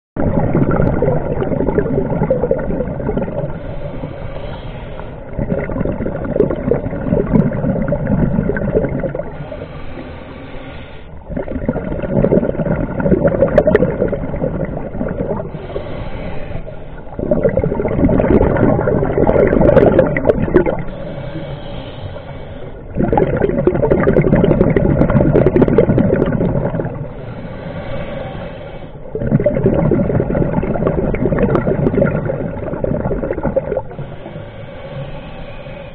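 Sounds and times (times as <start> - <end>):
exhaled bubbles underwater: 0.2 - 10.2, 11.2 - 34.4
hissing inhalations: 3.5 - 5.4, 9.3 - 11.2, 15.5 - 17.2, 20.8 - 23.0, 27.1 - 29.1, 33.8 - 35.9.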